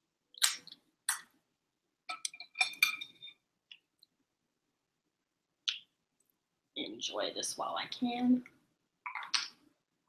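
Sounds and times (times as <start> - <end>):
tableware clinking: 2.1 - 3.4.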